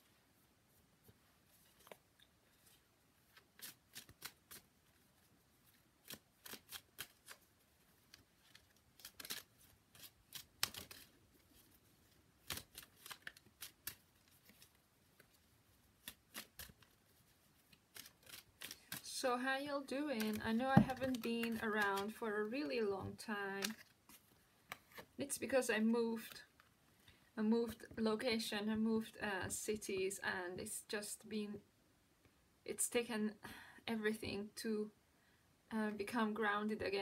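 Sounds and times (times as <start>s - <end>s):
cards being shuffled: 1.5s - 2.0s, 2.6s - 5.0s, 5.6s - 19.1s, 20.0s - 22.2s, 23.6s - 25.2s.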